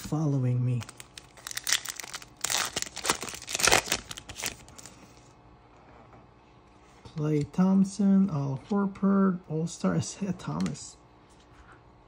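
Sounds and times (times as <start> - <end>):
foil wrapper tearing and crinkling: 0.7 - 5.0.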